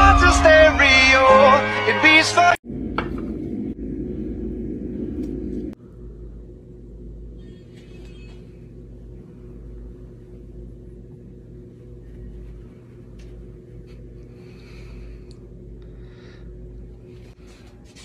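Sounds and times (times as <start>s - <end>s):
background music: 0.0s - 2.6s
steady low hum: 0.0s - 18.0s.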